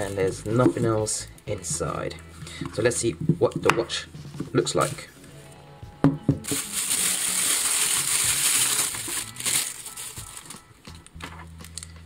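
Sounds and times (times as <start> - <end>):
plastic wrapping crinkling: 6.4 - 11.0.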